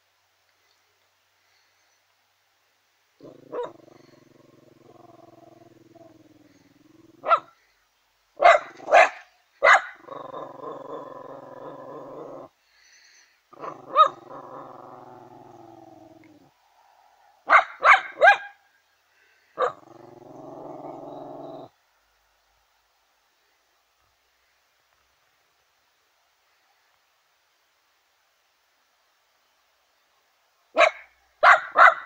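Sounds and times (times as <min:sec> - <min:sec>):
dog growling: 0:03.2 - 0:07.5, 0:10.0 - 0:12.5, 0:13.6 - 0:16.5, 0:19.6 - 0:21.7
dog barking sharply: 0:07.2 - 0:07.5, 0:08.4 - 0:10.0, 0:17.5 - 0:18.6, 0:30.8 - 0:32.0.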